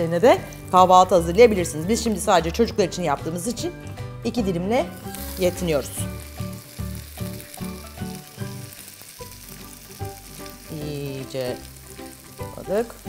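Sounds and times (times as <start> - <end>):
bread sizzling in a frying pan: 0.0 - 2.4, 4.8 - 13.0
light background music: 0.0 - 13.0.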